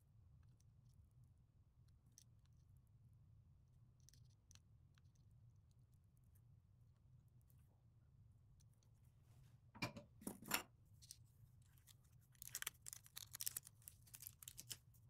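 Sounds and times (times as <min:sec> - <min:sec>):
light clicks and scratches: 0:10.2 - 0:15.0.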